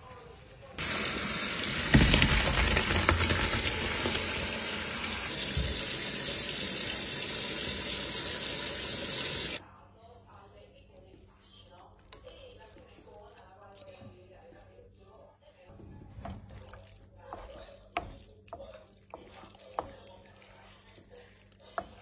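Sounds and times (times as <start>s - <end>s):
water gushing into sink: 0.8s - 9.6s.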